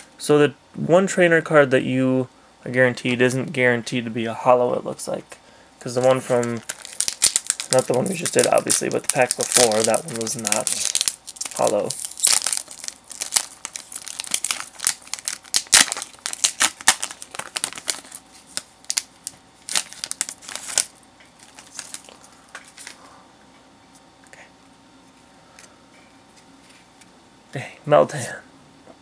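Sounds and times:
foil wrapper crinkling and tearing: 0:06.0 - 0:23.0.

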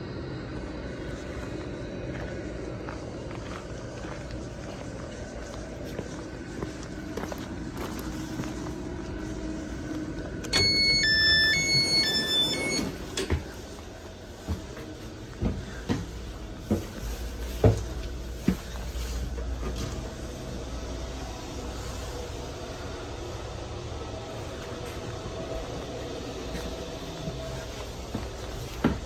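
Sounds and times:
electronic chime melody: 0:10.6 - 0:12.9
footsteps thumping on floor: 0:28.1 - 0:29.0.

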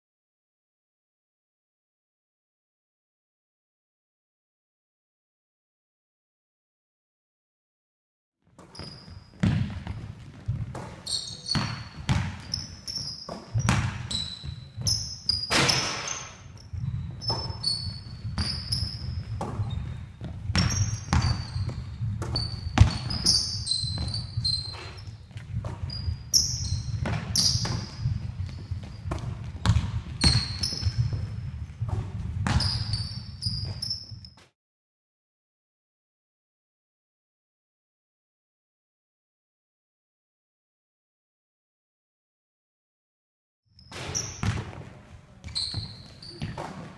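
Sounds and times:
shoes squeaking on court: 0:08.5 - 0:34.5, 0:43.8 - 0:46.9
basketball bouncing on hard floor: 0:08.6 - 0:34.4, 0:43.9 - 0:46.9.

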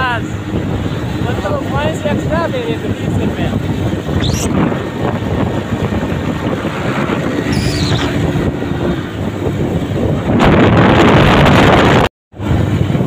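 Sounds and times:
motorcycle engine running: 0:00.0 - 0:10.4
air rushing past microphone: 0:02.0 - 0:13.0.

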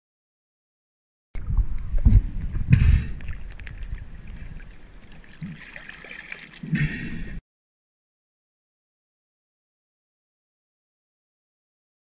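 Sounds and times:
sea water sloshing and splashing: 0:01.4 - 0:07.4
loud splash: 0:05.2 - 0:07.4.

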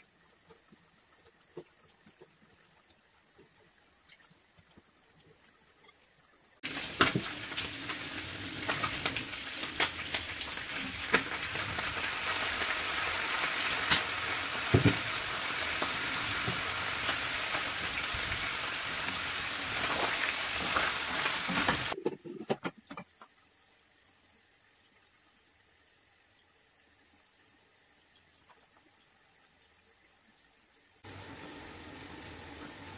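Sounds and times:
food sizzling in a frying pan: 0:06.6 - 0:22.1, 0:31.0 - 0:32.9.

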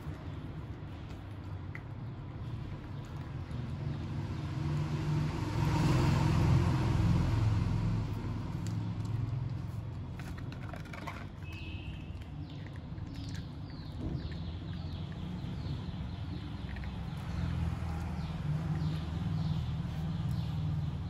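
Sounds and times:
vehicle passing by: 0:02.4 - 0:10.4, 0:14.2 - 0:21.0.

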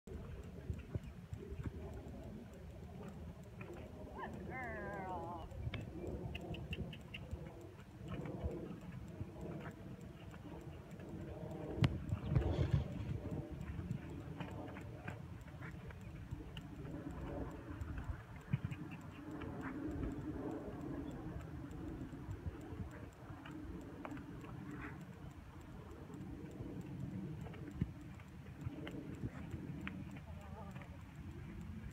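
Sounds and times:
horse hoofbeats on sand: 0:04.6 - 0:21.2.

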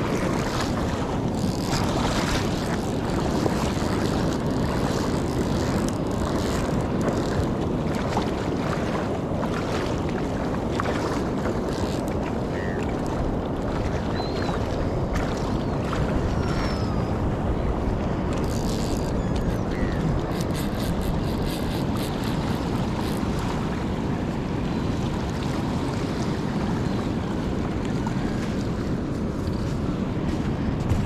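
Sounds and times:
light water splashes: 0:00.0 - 0:16.7
water lapping: 0:00.0 - 0:31.0
wind buffeting microphone: 0:00.0 - 0:31.0.

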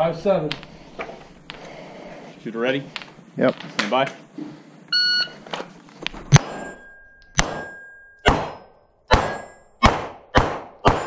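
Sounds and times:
steel plates ringing: 0:06.3 - 0:09.8
pistol shots echoing: 0:07.4 - 0:11.0.

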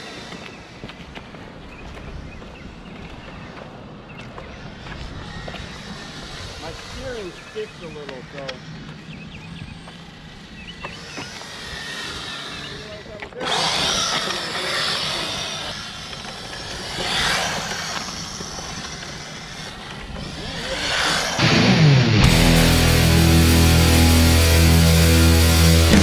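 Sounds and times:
rc car motor whine: 0:00.0 - 0:01.1, 0:04.6 - 0:26.0
loud rock music: 0:21.4 - 0:26.0.

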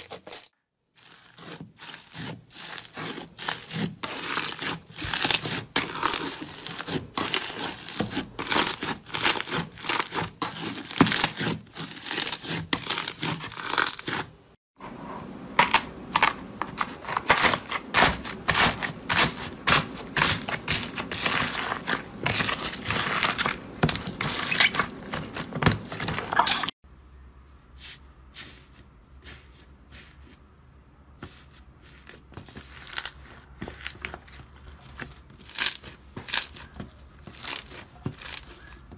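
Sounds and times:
slime crinkling and crackling: 0:00.0 - 0:14.4, 0:16.8 - 0:26.8, 0:31.3 - 0:38.9.

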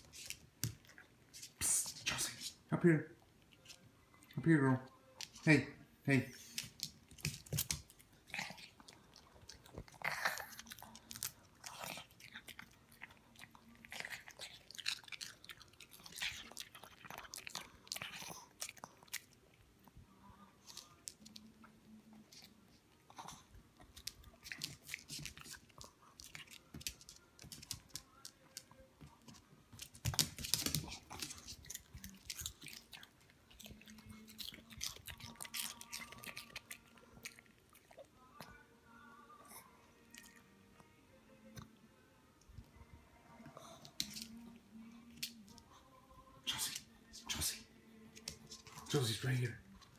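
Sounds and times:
crunchy food chewing: 0:07.1 - 0:19.4, 0:31.1 - 0:38.1.

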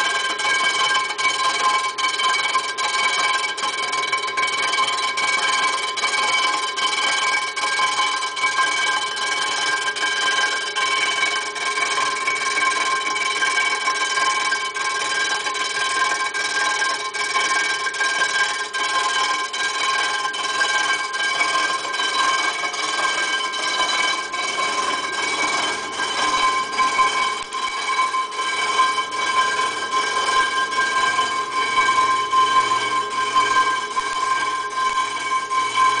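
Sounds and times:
machine whine: 0:19.2 - 0:36.0.

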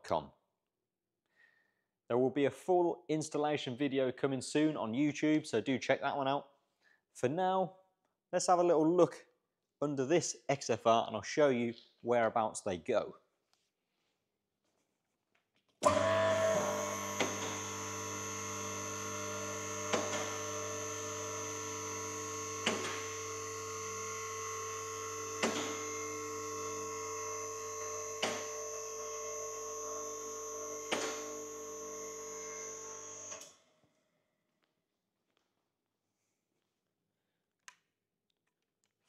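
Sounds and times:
hydraulic pump motor humming: 0:15.8 - 0:33.4.

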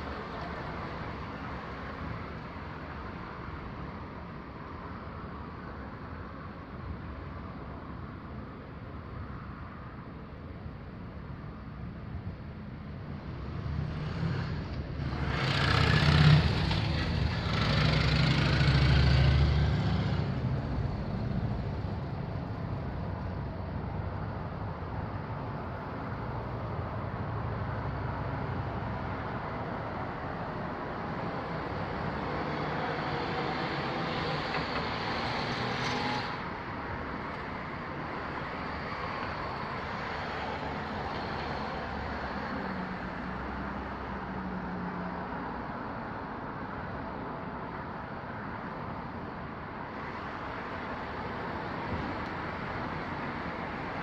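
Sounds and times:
steady traffic hum: 0:00.0 - 0:54.0
vehicle passing: 0:13.4 - 0:21.9.

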